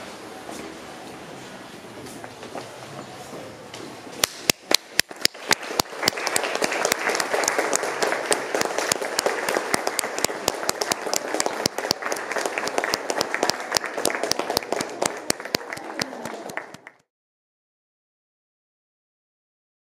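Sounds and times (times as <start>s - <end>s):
crowd applause: 4.5s - 17.1s.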